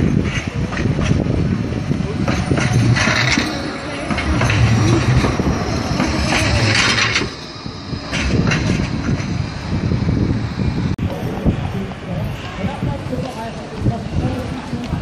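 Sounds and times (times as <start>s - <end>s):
tram rumbling past on rails: 0.0s - 15.0s.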